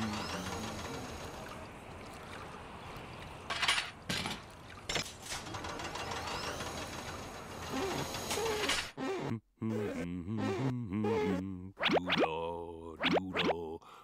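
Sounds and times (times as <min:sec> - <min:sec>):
mechanical whir and rattle: 0:05.2 - 0:09.0.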